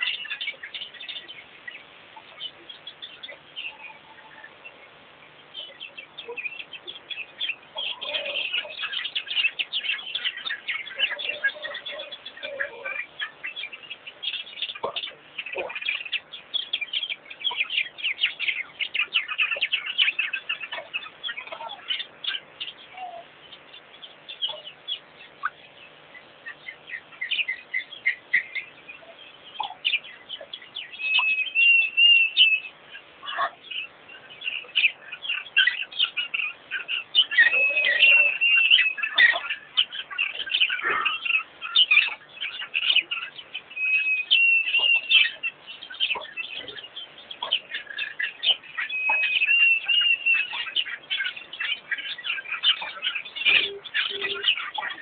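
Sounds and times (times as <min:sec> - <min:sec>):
songbirds chirping: 0:00.0 - 0:55.0
held whistled bird note: 0:37.5 - 0:39.0, 0:43.8 - 0:45.4.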